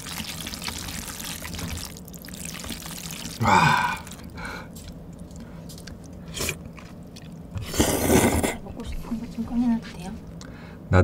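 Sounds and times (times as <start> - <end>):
person vocal sound: 3.4 - 4.3.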